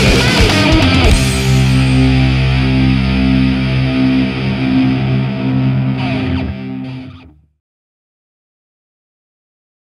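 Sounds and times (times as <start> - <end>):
distorted electric guitar chords: 0.0 - 7.6.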